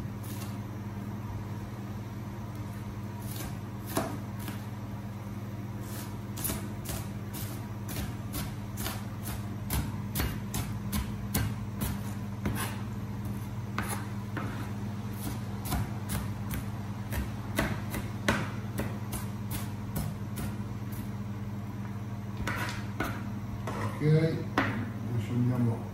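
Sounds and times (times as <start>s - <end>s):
steady low hum: 0.0s - 25.9s
knife chopping on cutting board: 3.3s - 4.7s, 5.8s - 21.1s, 22.4s - 24.0s.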